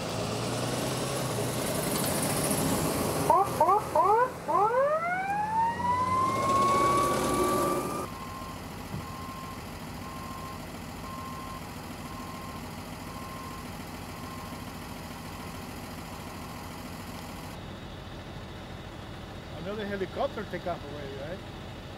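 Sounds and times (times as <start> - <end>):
vehicles idling: 0.0 - 21.9
ambulance siren wailing: 3.2 - 13.6.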